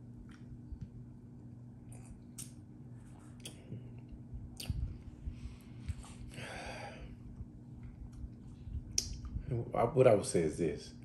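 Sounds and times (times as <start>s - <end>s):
mouth clicks and lip smacks: 1.9s - 2.6s, 3.4s - 3.7s, 4.5s - 5.0s, 8.9s - 9.4s
breathy exhale: 6.3s - 7.2s.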